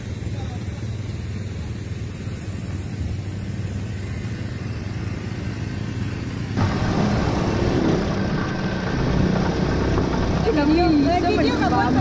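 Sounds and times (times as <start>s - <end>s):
engine idling: 0.0s - 12.0s
loud rough noise: 3.0s - 12.0s.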